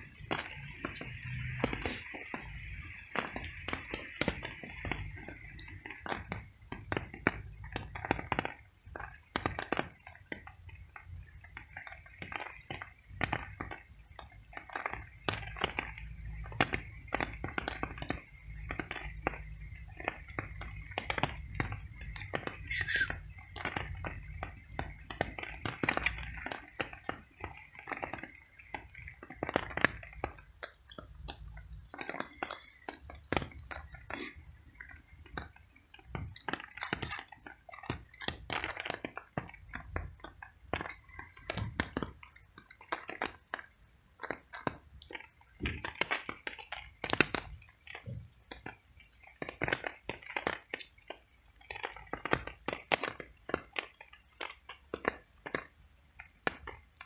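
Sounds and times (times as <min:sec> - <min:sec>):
cat chewing wet clicks: 0:21.2 - 0:47.4.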